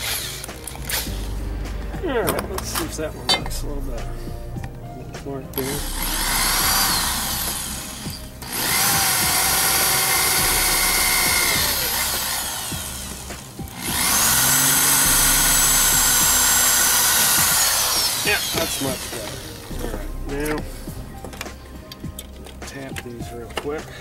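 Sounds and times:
electric drill boring into metal: 0:00.0 - 0:01.3, 0:05.6 - 0:19.9.

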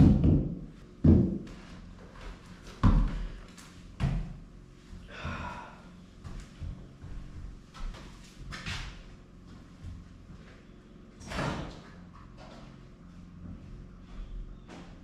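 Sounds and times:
heavy thumps on wooden floor: 0:00.0 - 0:01.6, 0:02.7 - 0:03.4
footsteps walking away: 0:00.7 - 0:10.7.

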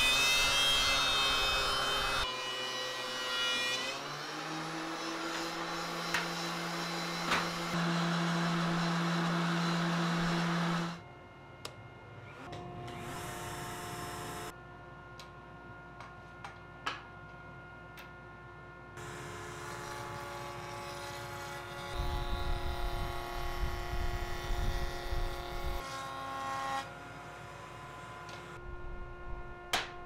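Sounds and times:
low rumble of wood cutting: 0:00.0 - 0:11.0, 0:19.0 - 0:28.8
router motor whine: 0:03.9 - 0:11.0, 0:12.2 - 0:14.5, 0:21.3 - 0:25.8.

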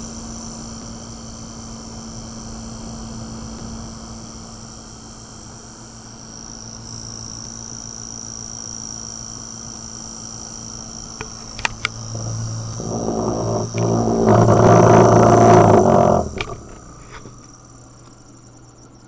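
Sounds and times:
motor humming with high whine: 0:10.9 - 0:18.1.

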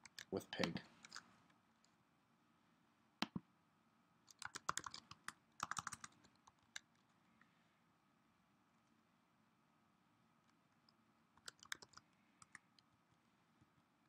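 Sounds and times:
computer keyboard typing: 0:00.0 - 0:00.3, 0:01.0 - 0:01.2, 0:04.3 - 0:06.9, 0:11.4 - 0:12.6.

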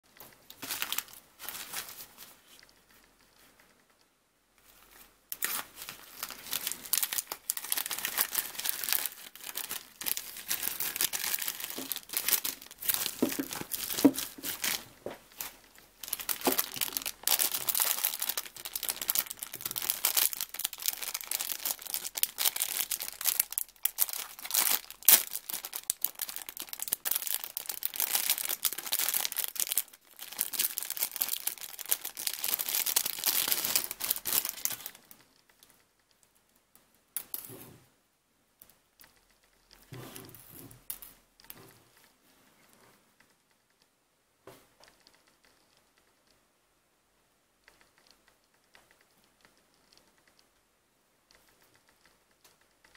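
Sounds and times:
plastic packaging crinkling and tearing: 0:00.5 - 0:02.3, 0:05.3 - 0:35.2.

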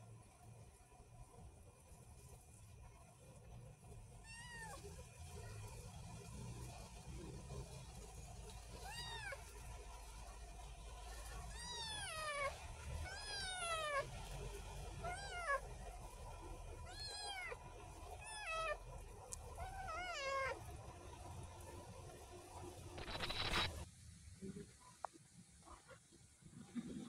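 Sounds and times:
kitten meowing: 0:08.8 - 0:09.4, 0:11.5 - 0:14.1, 0:15.0 - 0:15.6, 0:16.9 - 0:17.6, 0:19.5 - 0:20.6, 0:23.0 - 0:23.7.

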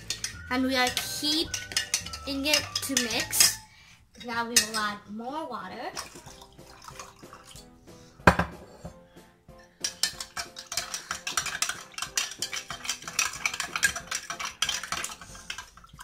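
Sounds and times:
spoon clinking in glass mug: 0:00.0 - 0:03.7, 0:09.8 - 0:16.0.

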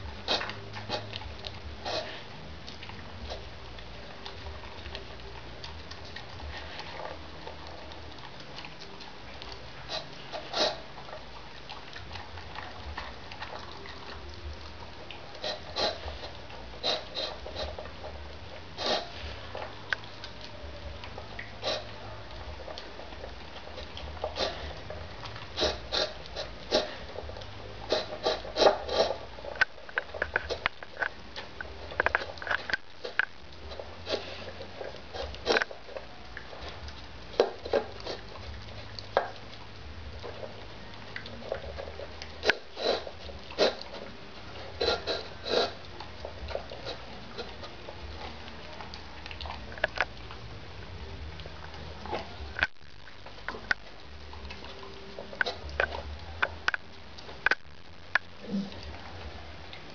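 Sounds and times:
dog chewing and lapping: 0:00.0 - 0:59.9
low steady hum: 0:00.0 - 0:59.9.

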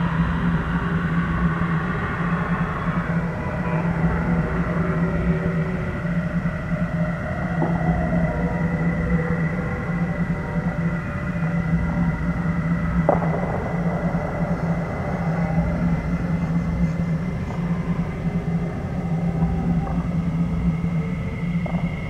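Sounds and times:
low pulsing drone: 0:00.0 - 0:22.0
thin steady high tone: 0:00.0 - 0:22.0.

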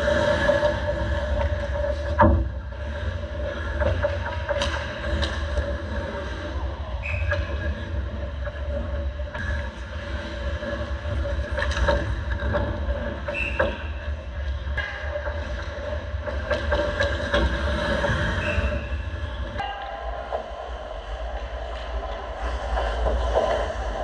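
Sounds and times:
hockey sticks and pucks clacking: 0:03.5 - 0:05.9
steady low rumble: 0:19.0 - 0:24.0.

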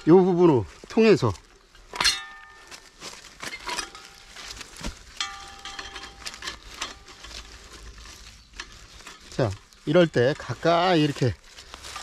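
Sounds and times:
ringing metal clink: 0:02.0 - 0:04.3, 0:05.2 - 0:07.4
metal trap clicking and clinking: 0:05.2 - 0:07.4.

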